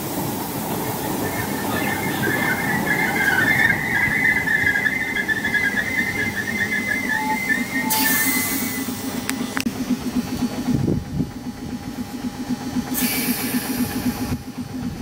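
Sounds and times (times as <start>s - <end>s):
train brakes squealing: 0.0s - 9.3s, 12.9s - 14.7s
wind rumble on microphone: 10.6s - 12.0s
brief hiss: 13.0s - 13.9s.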